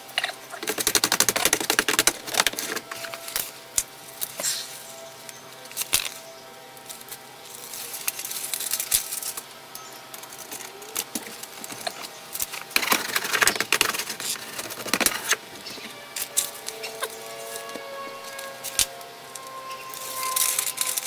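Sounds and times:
foil tape crinkling: 0.5 - 4.8, 5.6 - 9.5, 10.1 - 21.0
sheet metal clicks and scraping: 0.6 - 3.5, 10.3 - 21.0.

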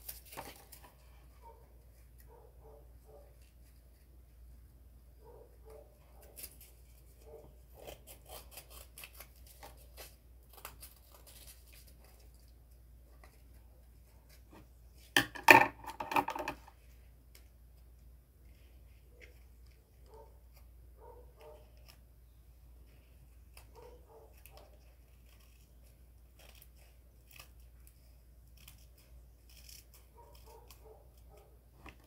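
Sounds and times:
scraping and knocks: 14.5 - 16.7.

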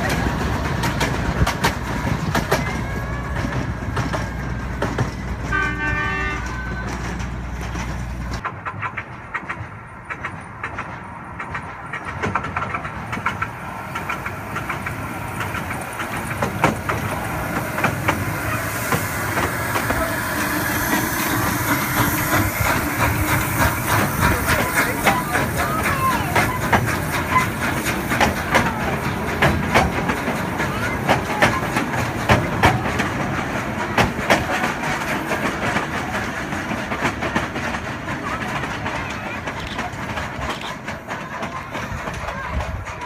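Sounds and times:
train wheels clicking over rail joints: 0.0 - 43.0
steam hissing: 12.8 - 41.0.

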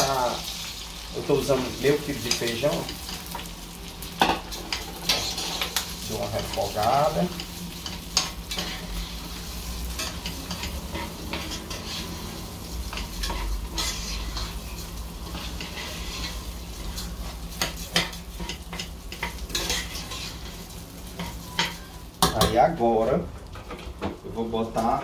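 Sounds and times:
fat sizzling: 0.0 - 23.2
spoon scraping a pot: 4.7 - 5.8, 12.9 - 14.6, 15.3 - 20.5.

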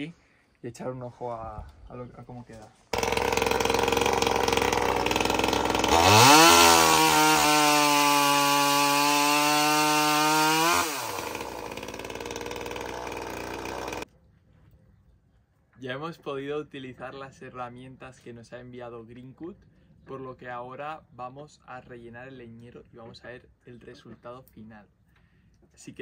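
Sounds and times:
chainsaw cutting logs: 3.0 - 14.0.

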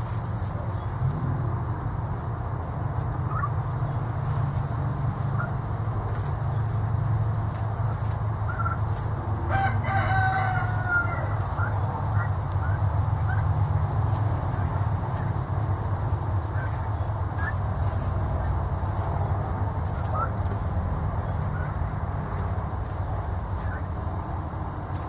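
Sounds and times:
steady low hum: 0.0 - 25.0
young turkeys chirping: 0.0 - 25.0
turkey trilling call: 3.2 - 3.8, 8.5 - 13.5.

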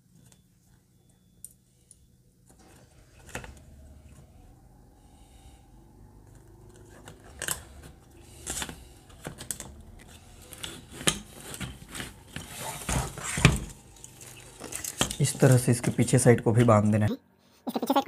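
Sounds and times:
plastic fan frames rattling: 7.2 - 16.8.

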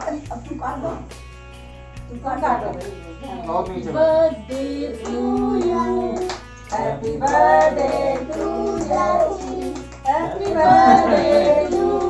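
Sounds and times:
song with singing: 3.6 - 12.0.

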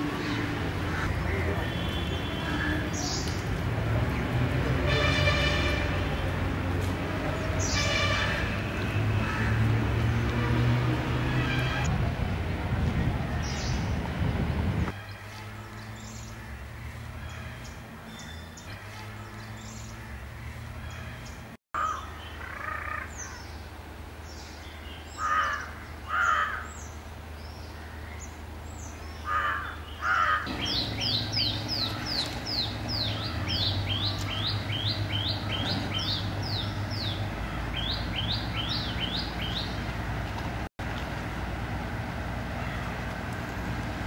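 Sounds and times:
crow-like caws: 9.2 - 9.6, 21.8 - 23.4, 25.2 - 26.7, 29.3 - 30.5.

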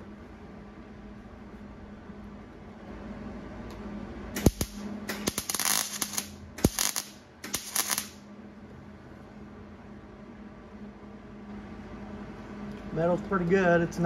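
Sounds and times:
welder crackling and sizzling: 4.4 - 8.2.

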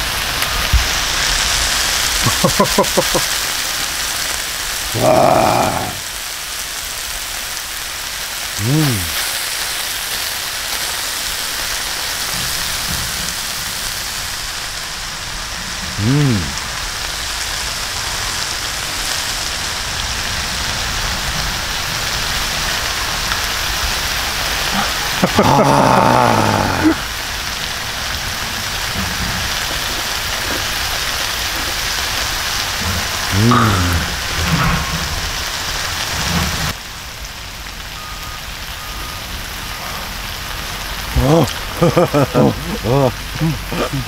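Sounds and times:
meat sizzling on a griddle: 0.0 - 43.9
person's voice: 2.2 - 3.3, 4.9 - 6.1, 8.6 - 9.2, 15.9 - 16.6, 24.7 - 27.1, 32.8 - 34.3, 41.1 - 44.0.

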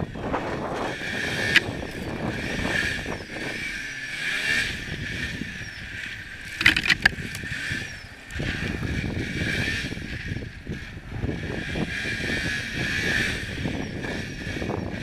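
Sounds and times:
snowmobile engine under load: 0.0 - 15.0
quick clacks: 6.5 - 7.2.

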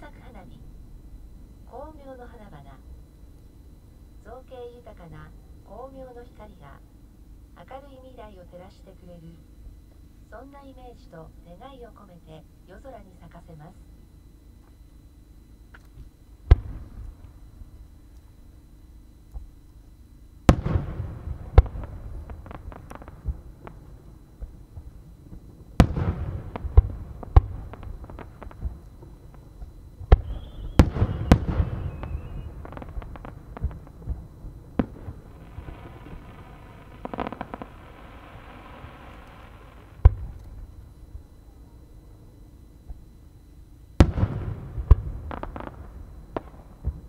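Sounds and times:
dense crackling hiss: 0.0 - 47.0
fireworks booming: 15.7 - 17.8, 20.4 - 41.8, 44.0 - 47.0
fireworks popping and crackling: 20.5 - 40.7, 44.0 - 47.0
falling whistle: 30.2 - 32.6.

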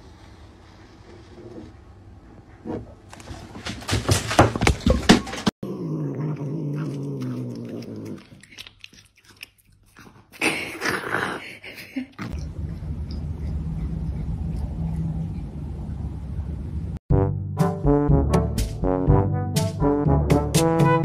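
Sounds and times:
cat growling low: 5.6 - 8.6
cat chewing and biting: 6.1 - 10.8, 12.2 - 15.9
steady low drone: 12.3 - 20.3.

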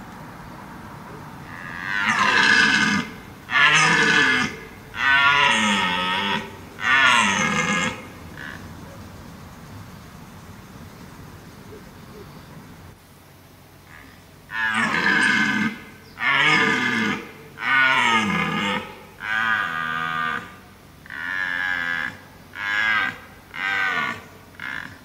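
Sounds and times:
deer stag roaring: 1.1 - 9.0, 13.9 - 25.0.

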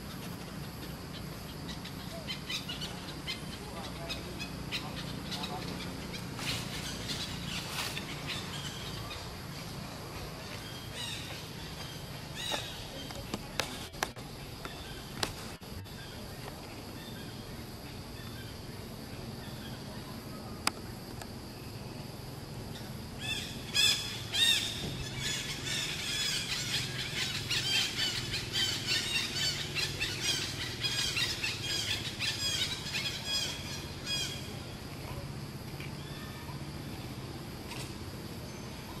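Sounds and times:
young monkey squealing: 23.2 - 34.4.

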